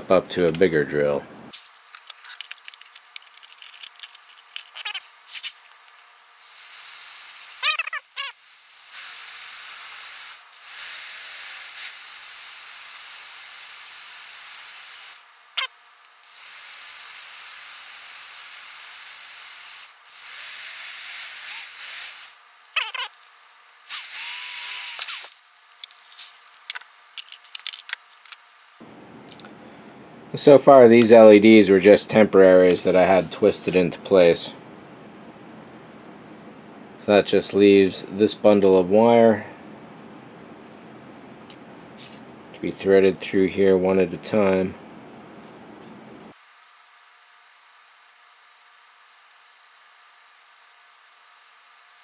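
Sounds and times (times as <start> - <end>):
rotary tool drilling plastic: 6.4 - 15.2, 16.2 - 23.2, 23.9 - 25.4.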